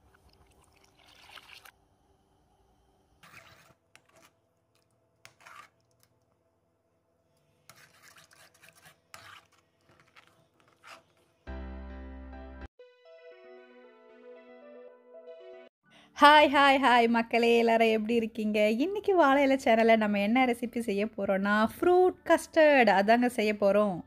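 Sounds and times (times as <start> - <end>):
metal spoon scraping a pan: 3.2 - 4.4, 5.2 - 6.0, 7.7 - 11.3.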